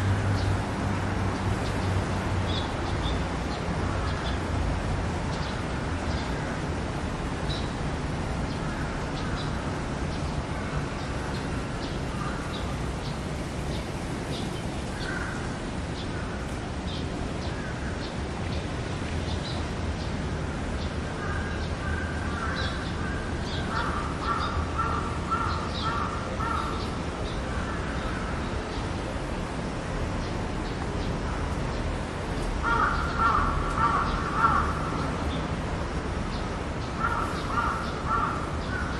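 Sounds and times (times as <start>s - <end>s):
crow cawing: 23.7s - 26.8s, 32.6s - 35.0s, 37.0s - 38.9s.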